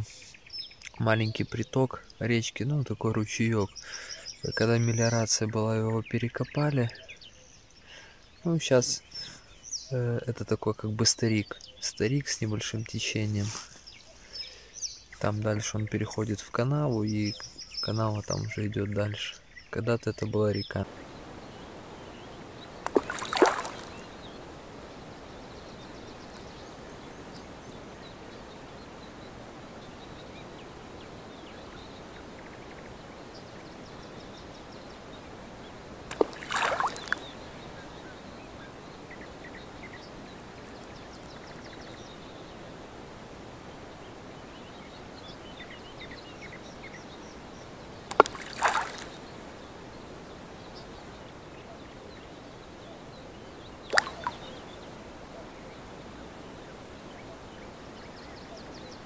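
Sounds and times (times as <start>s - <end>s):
float splashing in water: 22.8s - 24.2s, 36.1s - 37.4s, 48.1s - 49.2s, 53.9s - 54.5s.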